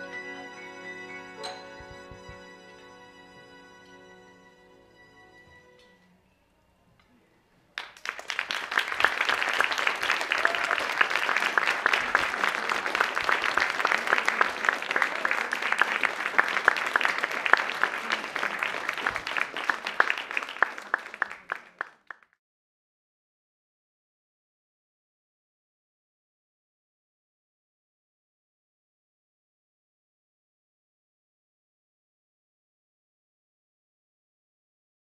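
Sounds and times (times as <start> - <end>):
audience applauding: 7.8 - 22.4.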